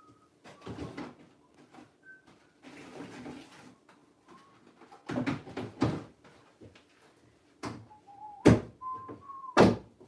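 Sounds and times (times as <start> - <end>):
faint whistle-like tones: 0.0 - 2.6, 7.8 - 9.6
objects knocking and thudding: 0.4 - 1.9, 2.6 - 6.8.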